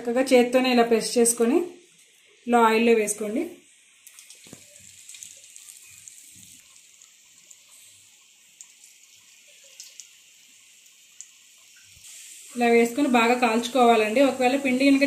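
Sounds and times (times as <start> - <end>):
crackles and pops of frying: 0.0 - 15.0
dough frying in hot oil: 0.0 - 15.0.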